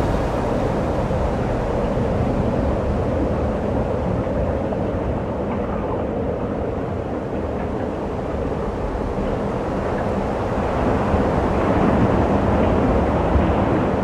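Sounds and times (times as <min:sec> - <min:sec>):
ocean surf rushing: 0:00.0 - 0:05.4.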